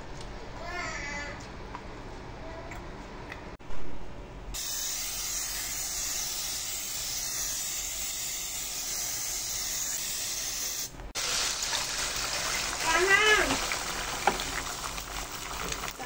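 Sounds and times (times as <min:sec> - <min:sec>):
aerosol spray hissing into pan: 0:04.6 - 0:16.0.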